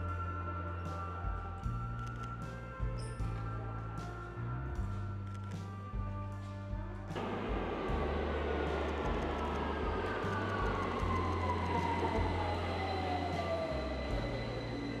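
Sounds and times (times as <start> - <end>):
train wheels rumbling on rails: 7.2 - 15.0.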